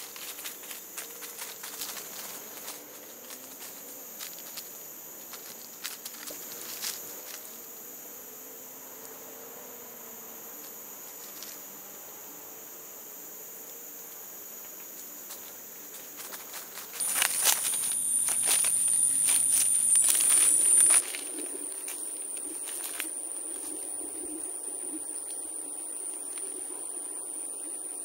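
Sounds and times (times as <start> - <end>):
dry leaves crackling underfoot: 0.0 - 4.7, 16.2 - 28.0
insects buzzing high whine: 0.0 - 28.0
loud close insect buzz: 0.0 - 28.0.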